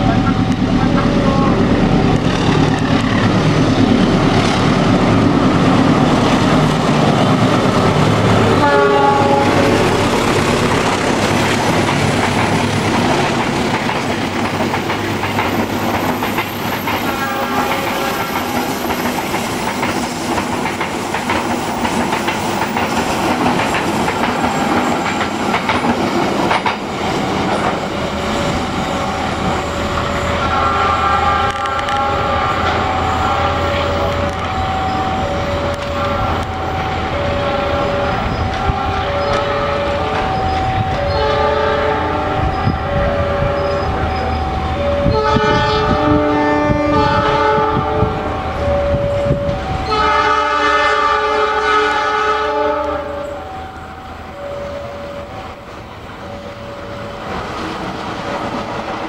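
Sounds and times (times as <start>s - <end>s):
locomotive engines running: 0.0s - 51.7s, 52.8s - 59.0s
train wheels clacking over rail joints: 0.1s - 30.3s
train horn blasts: 7.2s - 10.2s, 16.9s - 18.8s, 29.8s - 53.6s.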